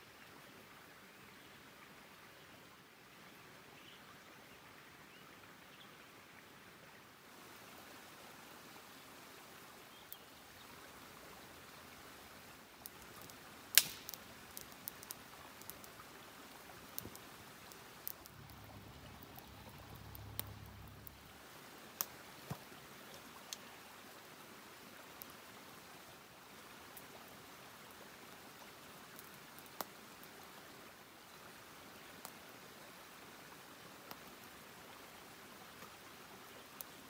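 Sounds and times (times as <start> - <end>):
faint steady hiss: 0.0 - 37.0
campfire crackling and popping: 12.6 - 23.7, 26.6 - 30.6, 34.1 - 34.5.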